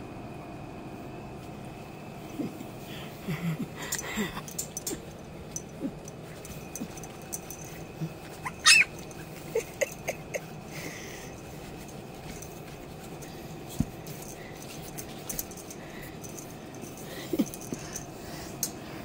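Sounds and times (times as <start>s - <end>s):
puppies crying: 7.6s - 10.5s.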